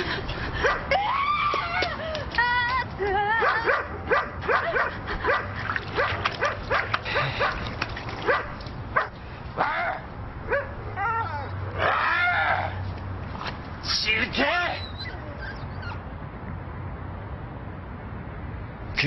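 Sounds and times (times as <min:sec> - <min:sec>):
dog barking and yipping: 0:03.4 - 0:07.6, 0:08.2 - 0:12.7.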